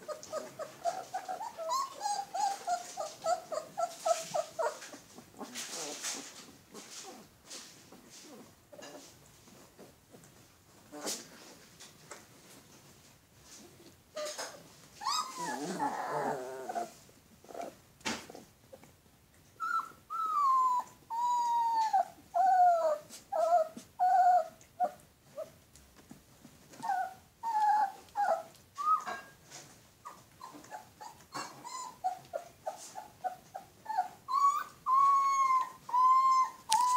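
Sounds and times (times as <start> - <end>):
puppies whining and yelping: 0.0 - 6.3, 14.2 - 17.8, 19.6 - 25.6, 26.7 - 29.4, 30.0 - 36.9.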